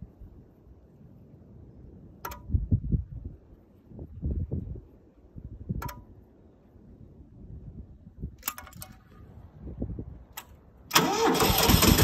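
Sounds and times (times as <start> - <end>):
wind on microphone: 0.0 - 10.4
sharp clicks: 5.8 - 6.1.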